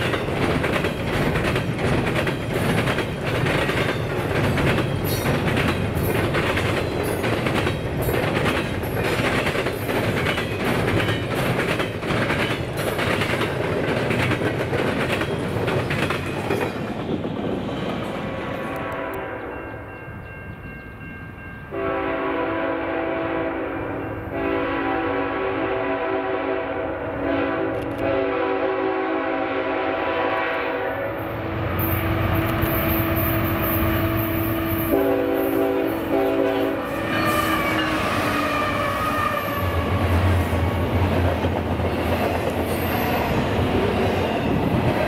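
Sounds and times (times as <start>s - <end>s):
wheels clicking over rail joints: 0.0s - 17.1s
train rumbling past: 0.0s - 45.0s
locomotive air horn blasts: 18.6s - 19.6s, 21.7s - 40.2s.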